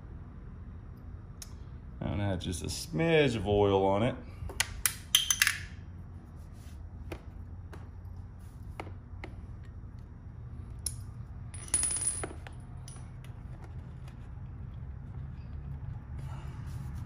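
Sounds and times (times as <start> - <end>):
low background hum: 0.0 - 17.0
metal fasteners clinking: 4.6 - 5.8, 10.7 - 13.6.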